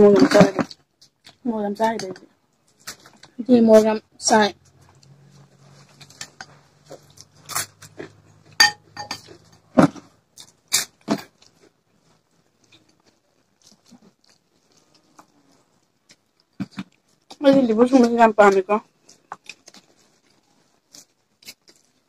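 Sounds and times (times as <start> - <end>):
chewing and mouth smacks: 4.6 - 8.6, 10.4 - 17.4, 18.9 - 22.0.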